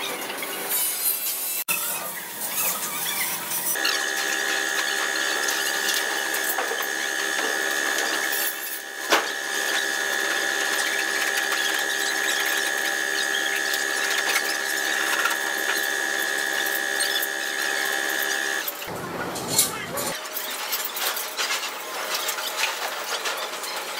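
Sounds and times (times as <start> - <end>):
machine whining: 1.7 - 20.2.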